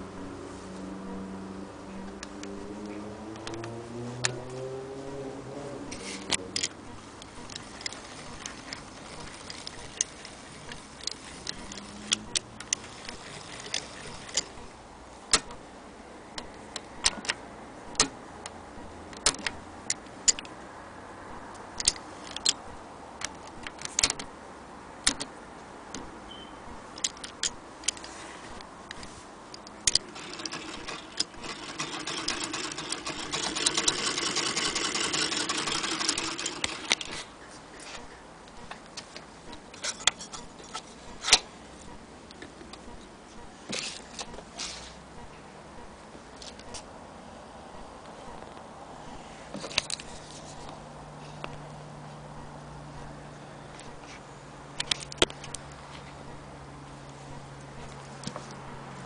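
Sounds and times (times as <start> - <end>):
sewing machine parts clicking: 7.5 - 14.6, 29.6 - 37.2
sewing machine clattering: 30.0 - 37.1.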